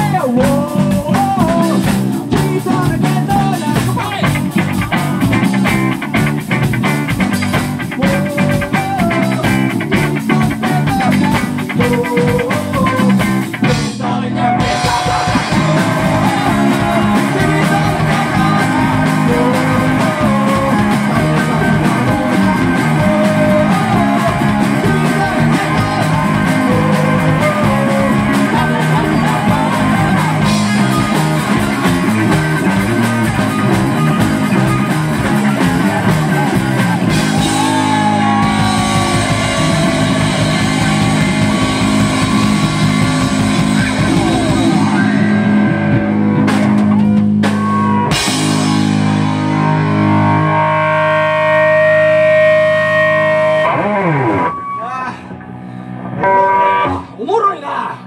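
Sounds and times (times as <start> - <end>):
man singing: 0.0 - 5.8, 7.8 - 45.6
rock band playing live: 0.0 - 57.4.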